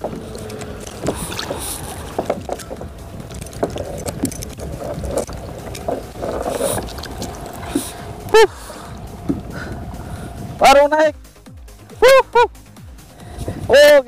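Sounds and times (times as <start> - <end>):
irregular knocks and clicks: 0.0 - 8.0, 9.0 - 9.9
water lapping against hull: 0.0 - 13.9.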